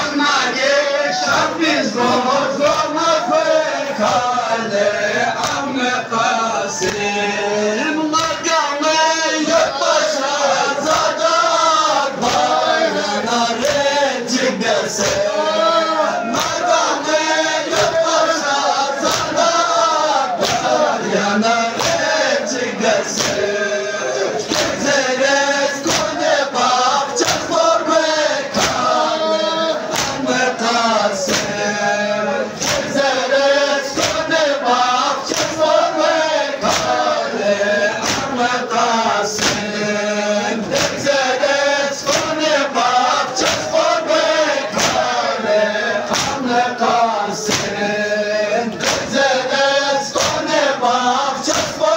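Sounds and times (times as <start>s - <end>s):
crowd of men chanting: 0.0s - 51.9s
hand slaps on chest: 5.4s - 5.6s, 13.6s - 13.8s, 19.1s - 19.3s, 20.4s - 20.7s, 21.8s - 22.0s, 23.1s - 23.4s, 25.8s - 26.2s, 27.2s - 27.5s, 28.5s - 28.8s, 29.9s - 30.2s, 31.3s - 31.5s, 32.6s - 33.0s, 34.0s - 34.3s, 35.3s - 35.6s, 36.6s - 37.0s, 38.0s - 38.3s, 39.4s - 39.7s, 40.8s - 41.0s, 42.0s - 42.3s, 43.4s - 43.7s, 44.7s - 45.1s, 46.1s - 46.4s, 47.5s - 47.7s, 48.8s - 49.1s, 50.2s - 50.4s, 51.5s - 51.8s.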